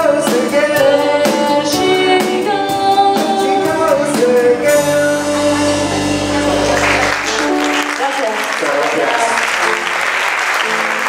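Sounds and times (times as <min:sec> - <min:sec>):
woman singing: 0:00.0 - 0:07.5
steady drum beat: 0:00.0 - 0:07.7
acoustic guitar: 0:00.0 - 0:07.9
band playing: 0:00.0 - 0:11.0.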